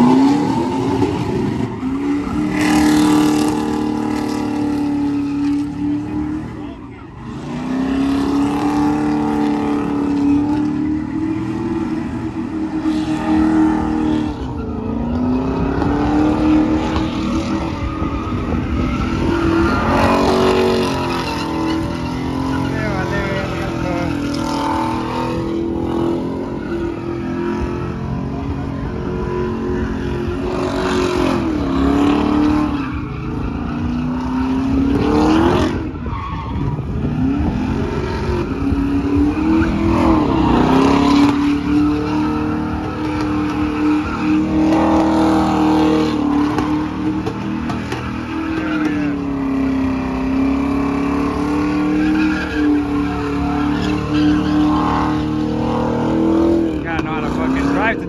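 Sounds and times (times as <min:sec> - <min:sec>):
car engine at high revs: 0:00.0 - 0:58.0
tyres screeching on pavement: 0:00.0 - 0:58.0.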